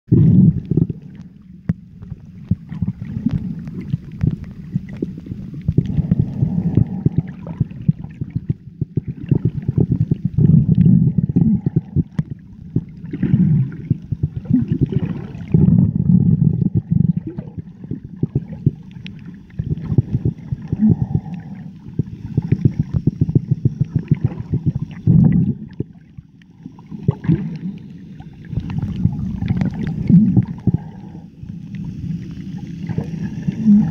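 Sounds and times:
underwater sloshing rumble: 0.1 - 33.9
small crackling clicks: 1.1 - 5.9.

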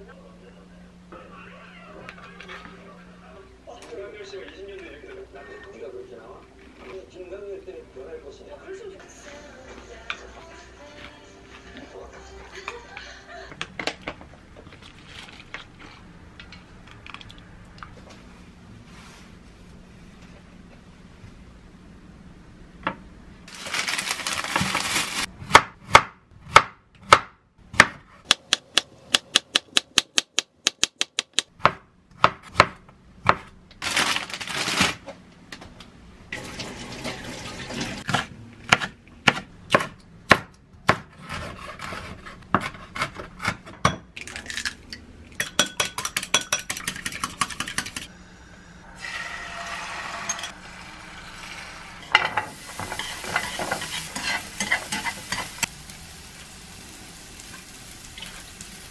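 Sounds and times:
knife chopping on wooden board: 38.1 - 43.9.

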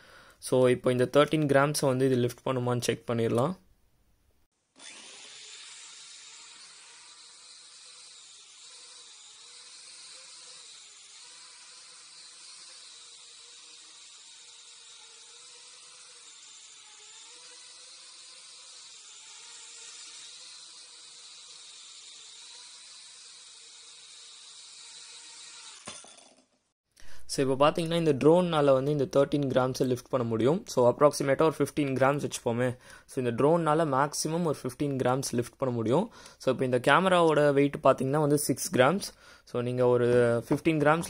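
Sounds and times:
toy drone propellers whirring: 4.8 - 26.7.

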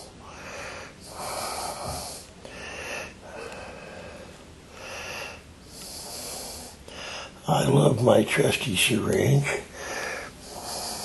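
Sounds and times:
person breathing: 0.0 - 7.4, 9.6 - 11.0.

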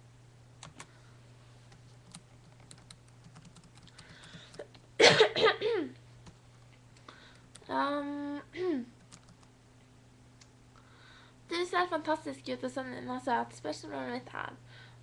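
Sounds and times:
low steady hum: 0.0 - 15.0
woman coughing: 5.0 - 6.0, 8.5 - 8.9.

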